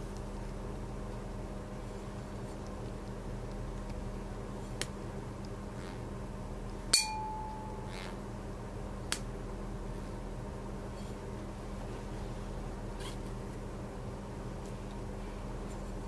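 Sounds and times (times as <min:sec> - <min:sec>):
steady low hum: 0:00.0 - 0:16.0
tuning fork clink and ringing: 0:06.9 - 0:08.0.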